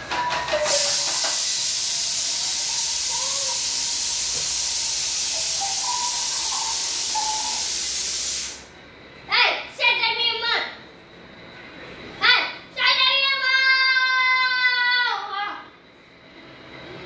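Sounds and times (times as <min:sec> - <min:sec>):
loud static hiss: 0:00.0 - 0:09.7.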